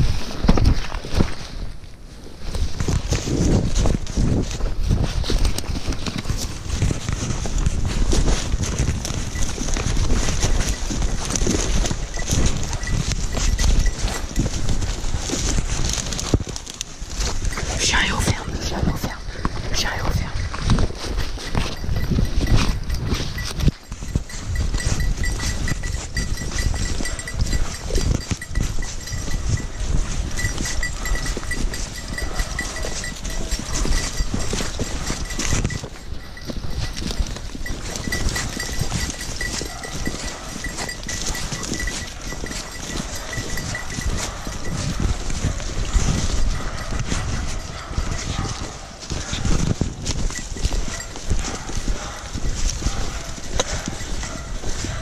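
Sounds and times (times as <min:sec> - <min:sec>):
footsteps through dry leaves: 0:00.0 - 0:22.5
dog footsteps: 0:00.0 - 0:55.0
rustling through dry leaves: 0:00.0 - 0:55.0
small bell jingling: 0:08.2 - 0:16.3, 0:17.1 - 0:48.8, 0:50.0 - 0:55.0.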